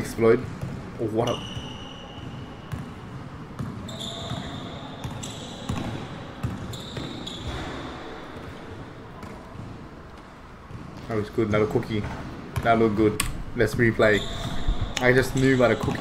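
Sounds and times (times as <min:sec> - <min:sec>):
sneakers squeaking on floor: 0:00.0 - 0:13.0, 0:13.6 - 0:16.0
basketball bouncing: 0:00.4 - 0:11.1.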